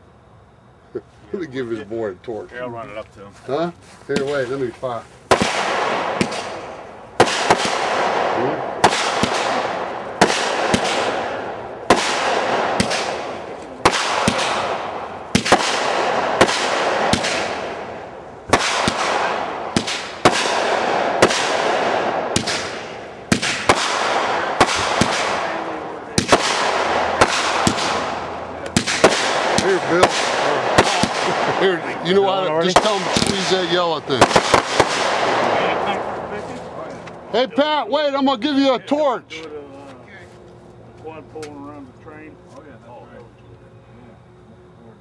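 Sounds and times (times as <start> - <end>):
firework shots popping and hissing: 4.1 - 36.6.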